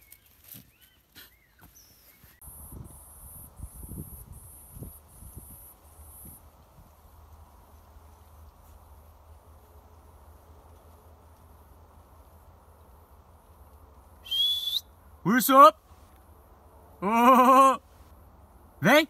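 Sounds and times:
faint outdoor background: 0.0s - 19.0s
person whistling loudly: 14.2s - 14.9s.

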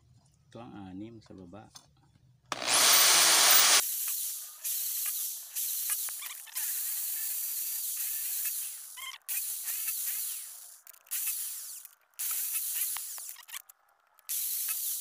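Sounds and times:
electric drill boring into steel: 2.5s - 3.9s.

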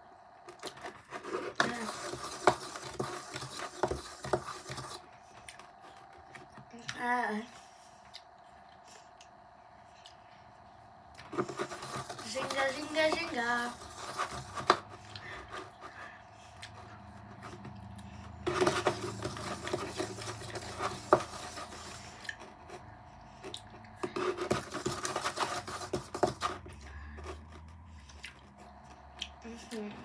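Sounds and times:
candy packet rubbing and scraping: 0.6s - 5.2s, 11.2s - 16.1s, 16.8s - 23.0s, 24.0s - 27.8s.

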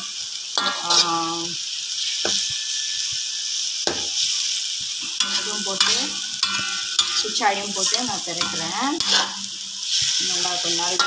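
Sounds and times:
food sizzling in a wok: 0.0s - 11.0s
metal ladle scraping wok: 0.6s - 11.0s.

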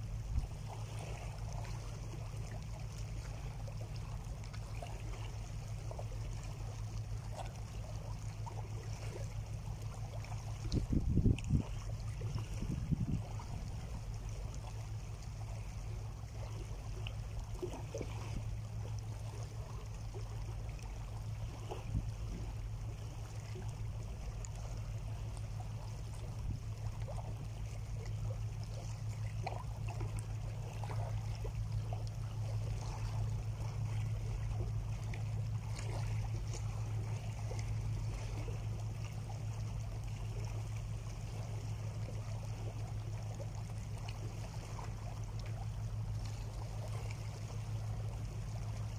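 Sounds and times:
small splashes: 0.0s - 48.9s
small waves lapping on rocks: 0.0s - 48.9s
steady low hum: 0.0s - 48.9s.

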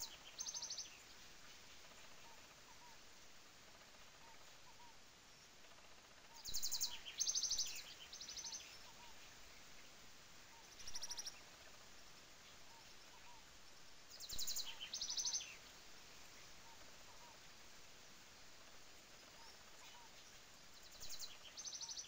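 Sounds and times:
faint soft chirps: 3.8s - 13.5s.

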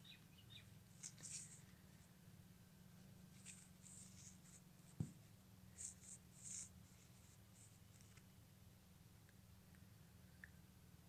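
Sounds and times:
low hum: 0.0s - 11.0s
faint scratching and rustling: 0.8s - 2.4s, 3.0s - 8.4s
soft thump: 5.0s - 5.2s.

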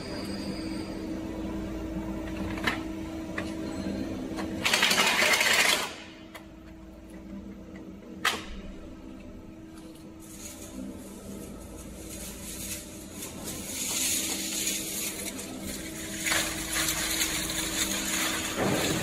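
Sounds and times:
machine humming: 0.0s - 19.0s
metal tubes rattling clatter: 10.3s - 19.0s.

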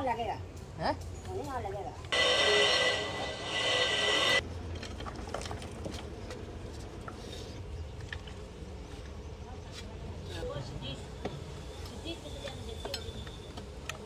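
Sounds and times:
loud steady high-toned noise: 2.1s - 4.4s.

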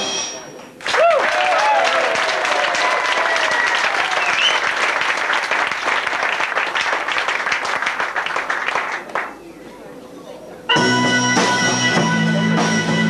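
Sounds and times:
audience applauding: 0.7s - 9.4s
whistles and cheers: 0.9s - 4.9s.

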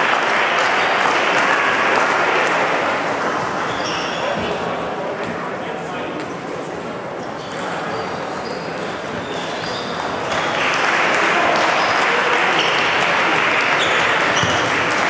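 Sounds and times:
applause: 0.0s - 3.6s, 10.1s - 15.0s
background chatter: 0.0s - 15.0s.

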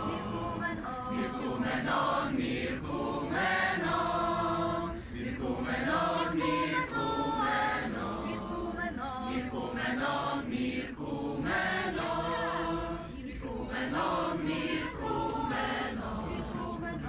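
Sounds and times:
choir singing a cappella: 0.0s - 17.0s.

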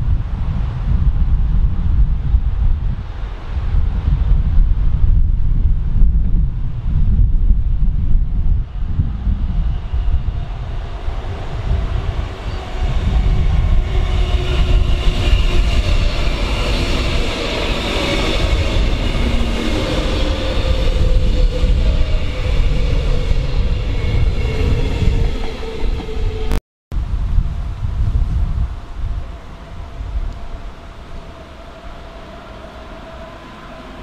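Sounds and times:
train wheels rumbling on rails: 7.0s - 26.6s
electric train whine: 8.4s - 26.6s, 28.7s - 34.0s.

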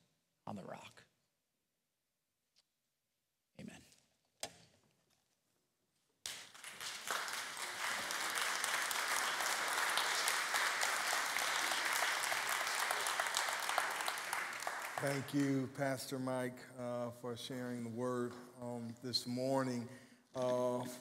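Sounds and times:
congregation applauding: 6.2s - 16.4s.

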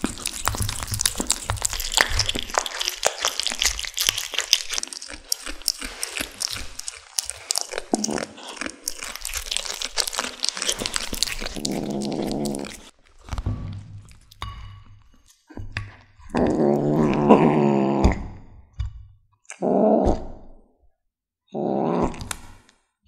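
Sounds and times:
kittens chewing crunching bites: 0.0s - 13.4s.

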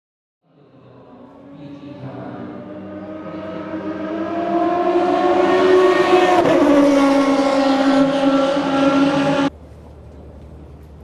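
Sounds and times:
racing car engine passing: 0.9s - 9.5s.

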